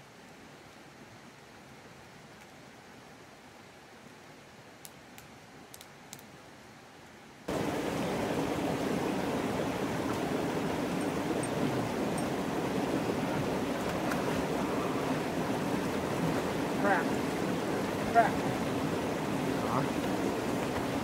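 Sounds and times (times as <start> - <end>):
stream running over rocks: 0.0 - 21.0
campfire crackles: 4.7 - 21.0.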